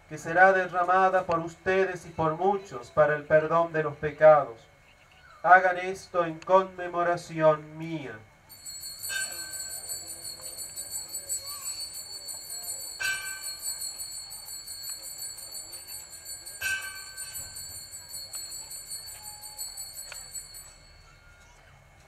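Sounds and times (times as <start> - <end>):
altar bells ringing: 8.5 - 21.6.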